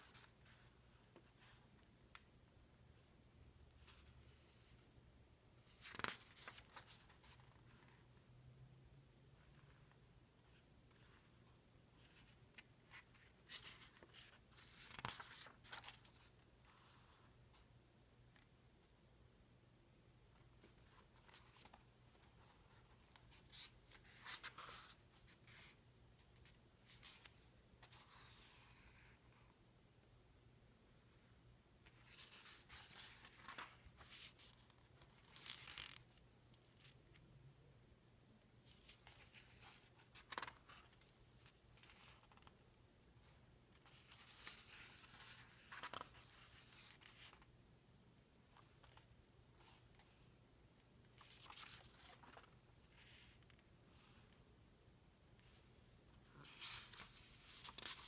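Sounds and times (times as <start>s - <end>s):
page flipping crackle: 5.6s - 8.0s, 12.0s - 16.3s, 31.9s - 36.2s, 38.7s - 42.5s, 43.8s - 47.5s, 51.2s - 53.6s, 56.4s - 58.0s
paper page rustling: 5.6s - 8.0s, 12.0s - 16.8s, 38.7s - 42.5s, 43.8s - 47.5s, 51.1s - 53.6s, 56.2s - 58.0s.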